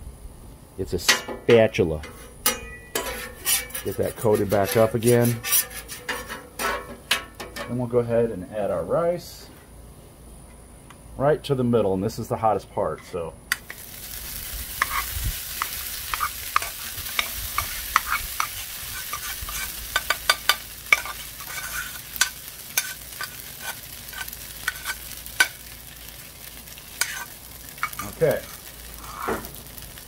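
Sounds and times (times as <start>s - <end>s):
rice sizzling on griddle: 0.0s - 7.7s, 13.5s - 30.0s
spoon clicking and scraping pot: 19.1s - 25.6s.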